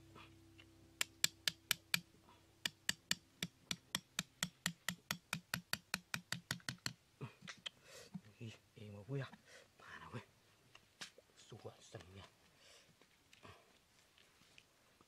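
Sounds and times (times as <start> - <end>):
hatchet striking wood: 1.0 - 7.0.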